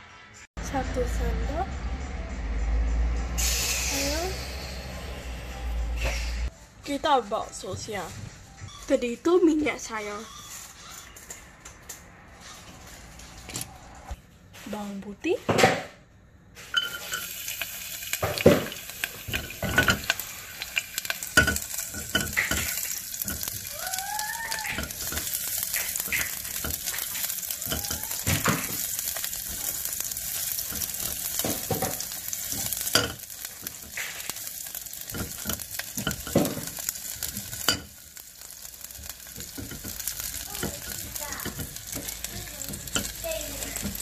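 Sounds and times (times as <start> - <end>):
garlic sizzling in hot oil: 16.6 - 44.0.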